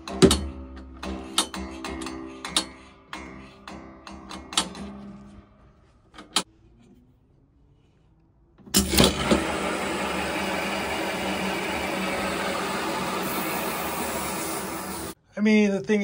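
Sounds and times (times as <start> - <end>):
machinery running loudly: 8.8 - 15.2.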